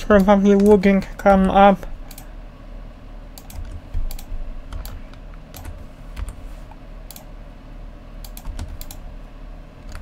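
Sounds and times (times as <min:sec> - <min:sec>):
low steady hum: 0:00.0 - 0:10.0
keyboard and mouse clicking: 0:03.4 - 0:06.4, 0:07.0 - 0:07.3, 0:08.2 - 0:09.0.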